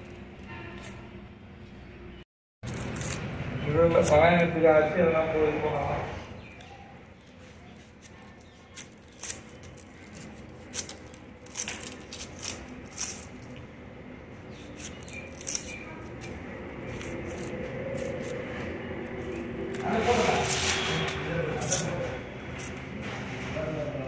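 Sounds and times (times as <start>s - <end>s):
knife scraping onion skin: 2.6s - 4.5s, 6.5s - 13.7s, 14.4s - 23.0s
dry onion skin crackling: 2.6s - 5.1s, 6.4s - 23.1s.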